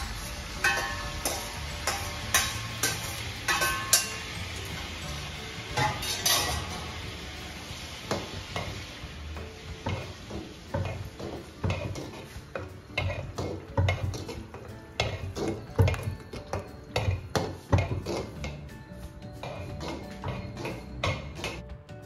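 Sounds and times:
wooden ladle scraping a pot: 0:10.8 - 0:16.2, 0:17.0 - 0:18.6, 0:19.4 - 0:21.6.

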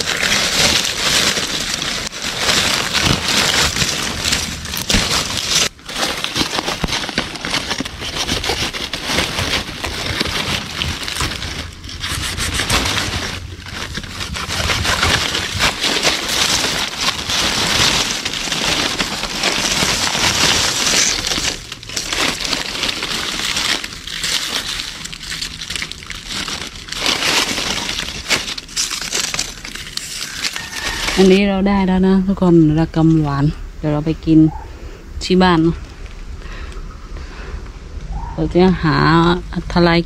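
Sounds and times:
fronds snapping and crunching: 0:00.0 - 0:33.4, 0:35.5 - 0:39.9
dry leaves crackling and rustling: 0:00.0 - 0:40.0.

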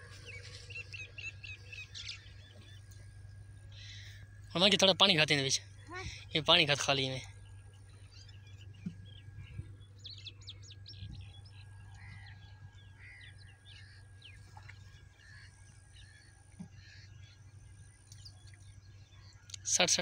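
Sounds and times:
low steady hum: 0:00.0 - 0:20.0
small birds chirping: 0:00.0 - 0:20.0.

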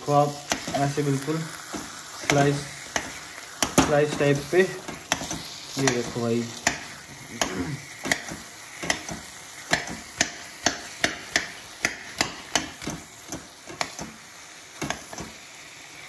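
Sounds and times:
faint sizzle: 0:00.0 - 0:16.0
metal utensil knocking on pan: 0:08.0 - 0:14.1.

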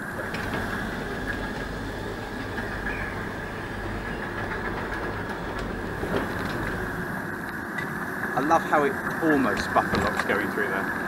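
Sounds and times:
miniature train running: 0:00.0 - 0:07.2.

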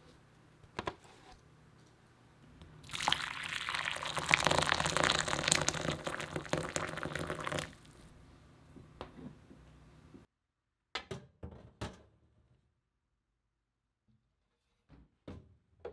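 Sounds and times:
water pouring into glass bowl: 0:02.8 - 0:08.1.

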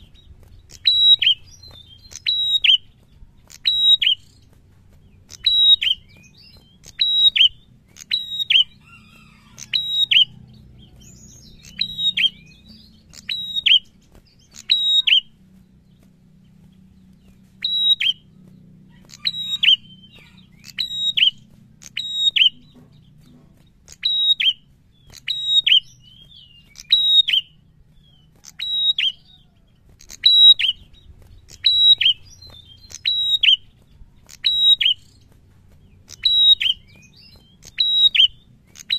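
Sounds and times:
bird calling high notes: 0:05.3 - 0:15.4.

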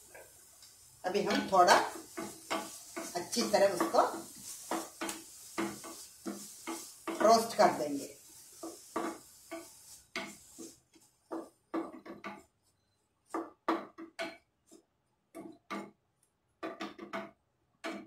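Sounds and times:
wooden spatula knocking on a pan: 0:01.3 - 0:07.6, 0:08.6 - 0:12.4, 0:13.3 - 0:14.4, 0:15.3 - 0:16.0, 0:16.6 - 0:18.0.

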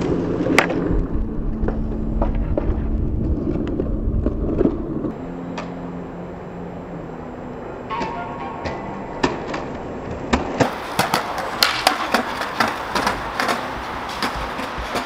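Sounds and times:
skateboard clacks: 0:00.0 - 0:02.8, 0:07.9 - 0:15.0
skateboard wheels rolling on stone: 0:00.0 - 0:05.8, 0:09.1 - 0:15.0
low hum: 0:00.0 - 0:11.6.

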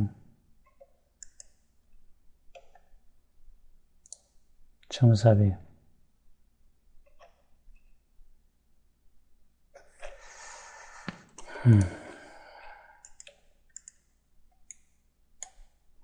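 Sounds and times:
computer mouse clicks: 0:00.7 - 0:01.6, 0:02.5 - 0:03.0, 0:04.0 - 0:04.4, 0:13.0 - 0:15.8
man sighing and groaning: 0:10.6 - 0:13.0.

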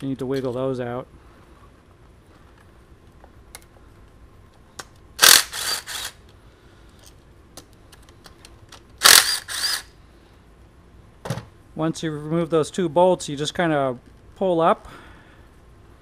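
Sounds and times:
power ratchet whirring: 0:05.2 - 0:06.2, 0:09.0 - 0:09.9.

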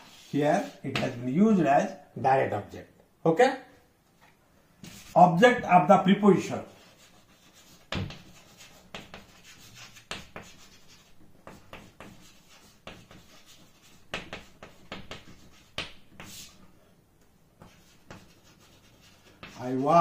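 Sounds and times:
pen scratching on surface: 0:06.8 - 0:16.6, 0:17.6 - 0:20.0.

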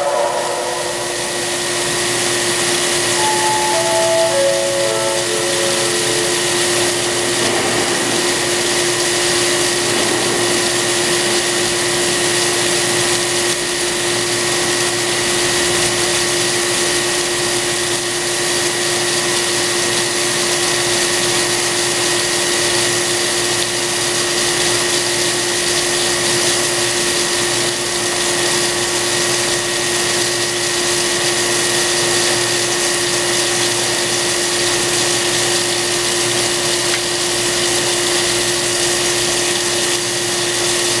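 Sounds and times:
machine hum and high whine: 0:00.0 - 0:13.6.

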